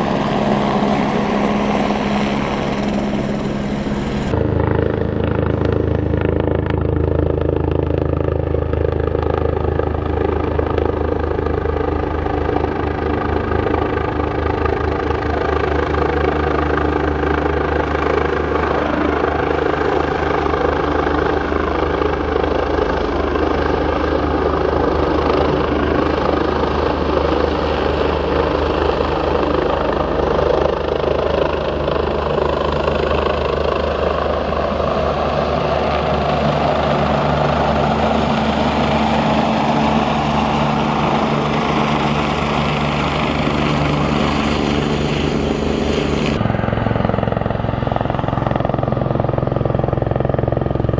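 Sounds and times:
helicopter drone overhead: 0.0 - 50.9
steady tone: 36.0 - 50.3.

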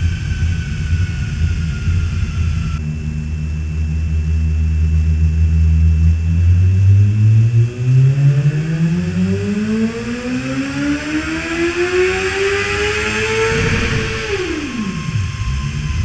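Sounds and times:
race car engine revving: 5.0 - 16.0.

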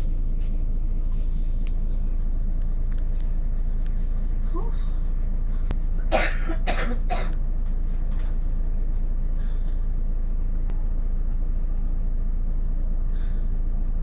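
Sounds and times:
bus engine idling: 0.0 - 14.0
person coughing: 6.1 - 7.4.

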